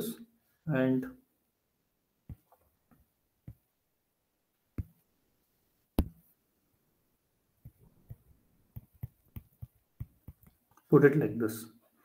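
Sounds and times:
stylus knocks on tablet: 6.0s - 6.2s.

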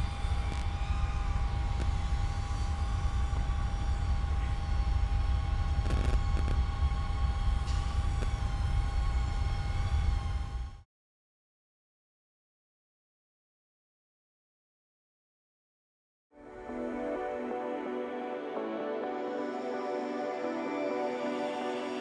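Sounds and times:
quadcopter motors whining: 0.0s - 10.8s
wind rumble on microphone: 0.0s - 10.8s.

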